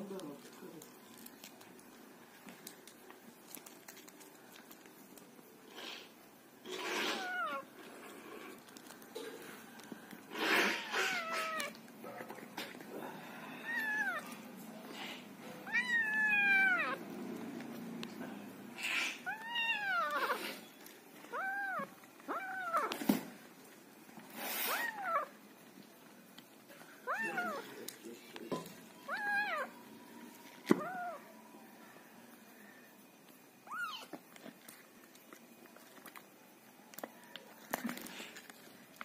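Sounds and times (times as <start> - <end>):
kitten meowing: 6.9 - 7.7, 13.6 - 14.3, 15.6 - 17.0, 18.8 - 20.6, 21.3 - 23.0, 24.6 - 25.3, 27.0 - 27.6, 29.0 - 29.7, 30.7 - 31.2, 33.6 - 34.2.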